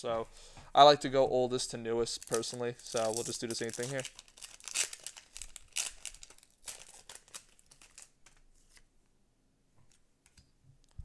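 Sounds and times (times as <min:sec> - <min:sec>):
foil wrapper crinkling and ripping: 0:02.2 - 0:08.8.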